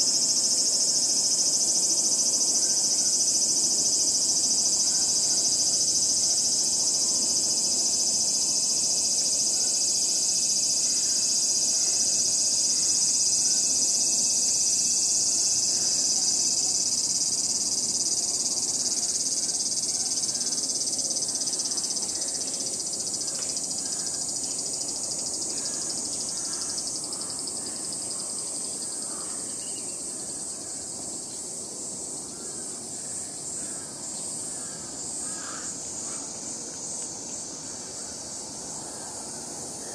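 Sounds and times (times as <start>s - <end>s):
insects chirping shrilly: 0.0s - 31.6s, 32.2s - 39.9s.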